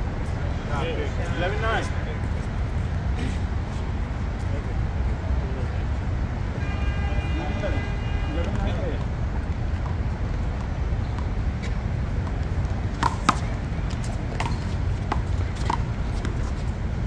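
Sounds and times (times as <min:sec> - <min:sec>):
ball hitting hand and wall: 0:13.0 - 0:16.4.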